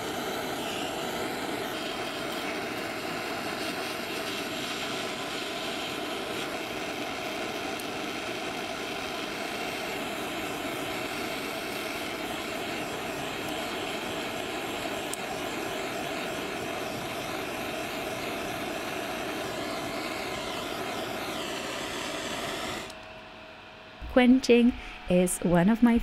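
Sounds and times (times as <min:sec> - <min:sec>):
soldering torch flame hissing: 0:00.0 - 0:23.0.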